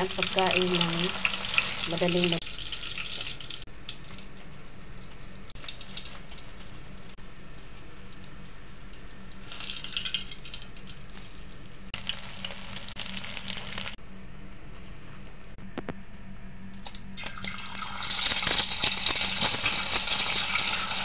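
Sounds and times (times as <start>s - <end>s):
oil sizzling in a frying pan: 0.0s - 14.0s, 17.2s - 21.0s
steady low hum: 3.5s - 18.0s.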